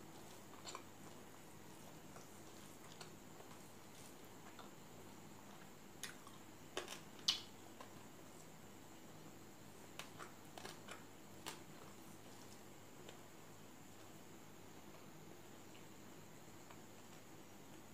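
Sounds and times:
faint steady hiss: 0.0s - 17.9s.

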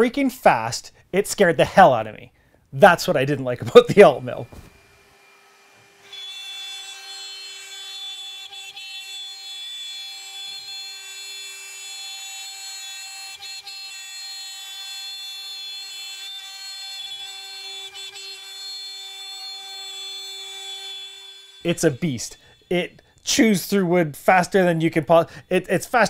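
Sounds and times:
router spindle whine cutting plywood: 3.7s - 23.0s.

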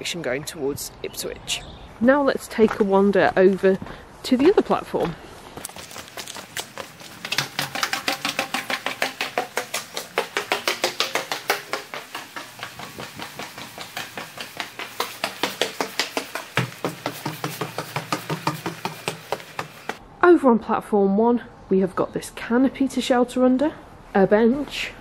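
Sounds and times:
footsteps on stairs: 5.0s - 20.0s.

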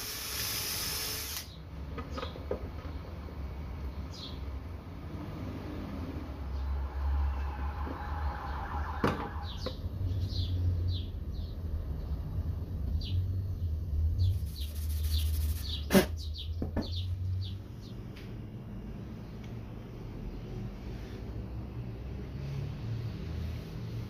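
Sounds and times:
small birds chirping: 3.8s - 4.8s, 9.4s - 18.4s
low hum: 6.1s - 15.7s
tools knocking on wood: 16.6s - 17.0s.

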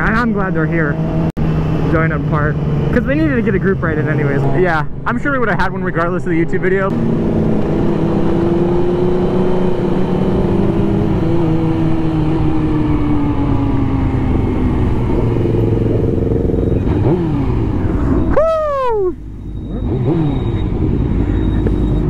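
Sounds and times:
motorcycle engine running: 6.9s - 18.4s.

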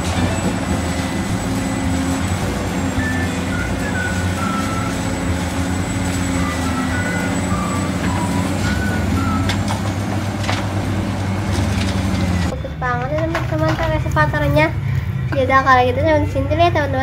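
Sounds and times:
faint shifting high tones: 0.0s - 12.9s
excavator diesel engine running: 0.0s - 17.0s.

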